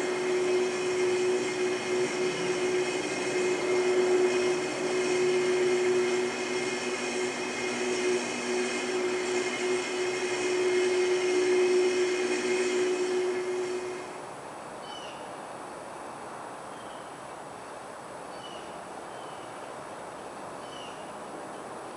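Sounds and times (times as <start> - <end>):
high electric whine: 0.0 - 14.2.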